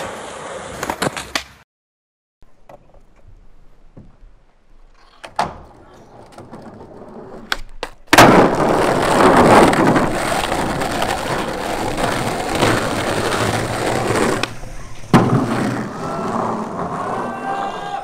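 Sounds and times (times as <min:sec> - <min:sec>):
skateboard wheels rolling: 0:00.0 - 0:01.6, 0:04.8 - 0:18.0
skateboard clacking: 0:05.0 - 0:17.2.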